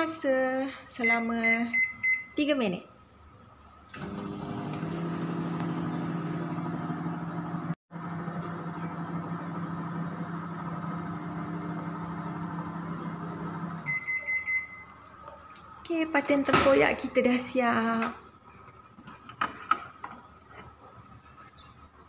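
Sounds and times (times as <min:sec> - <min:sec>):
microwave oven humming: 0:04.0 - 0:14.9.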